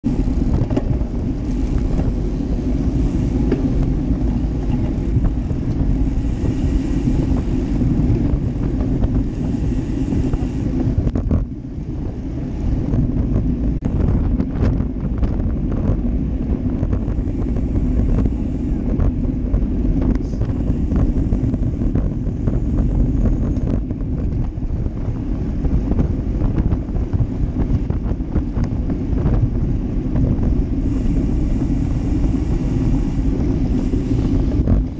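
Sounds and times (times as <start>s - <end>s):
tyre rumble on road: 0.0s - 34.9s
wind rushing on microphone: 0.0s - 34.9s.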